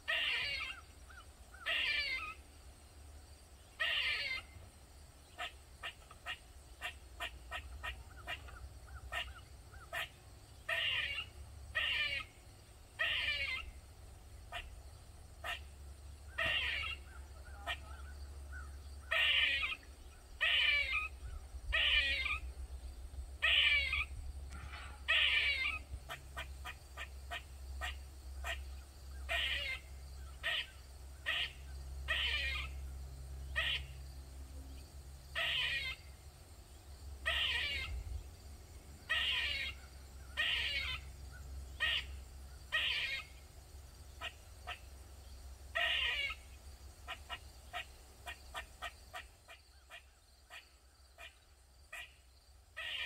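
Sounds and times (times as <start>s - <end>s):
squirrel alarm calls: 0.0s - 2.5s, 3.6s - 4.6s, 5.2s - 34.0s, 35.3s - 38.4s, 39.0s - 53.0s.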